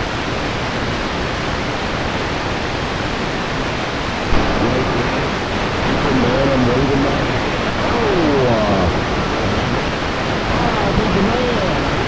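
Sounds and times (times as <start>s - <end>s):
radio static hiss: 0.0s - 12.0s
faint garbled voice: 4.3s - 12.0s.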